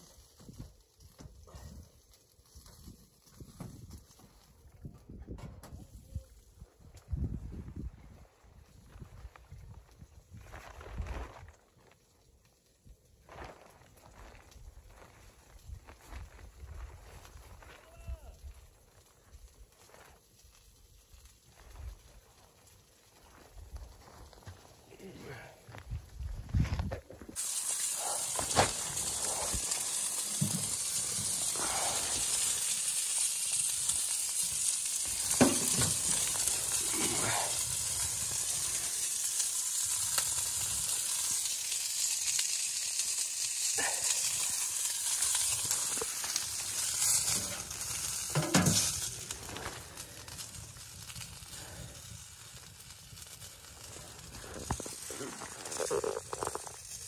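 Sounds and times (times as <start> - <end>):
wood fire crackling and popping: 0.0 - 57.0
steady hiss: 27.3 - 57.0.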